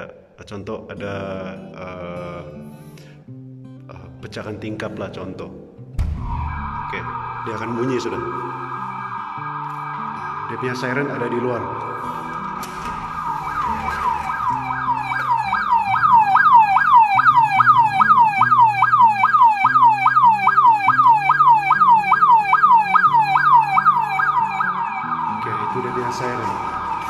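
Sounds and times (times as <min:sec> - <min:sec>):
electronic alarm siren sweeping: 0:06.1 - 0:27.0.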